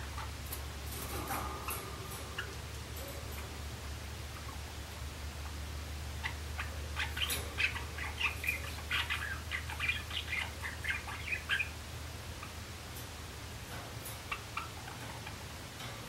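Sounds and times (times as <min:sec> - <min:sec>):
low steady hum: 0:00.0 - 0:16.0
sparrow chirping song: 0:05.4 - 0:12.6.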